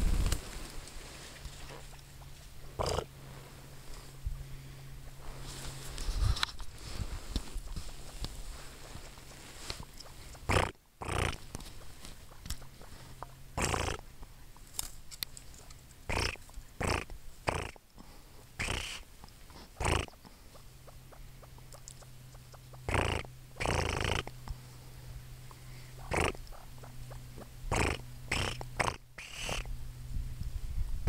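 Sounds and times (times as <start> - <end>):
grouse giving soft calls: 6.8 - 14.8, 16.1 - 17.8, 18.4 - 24.6, 25.4 - 29.7.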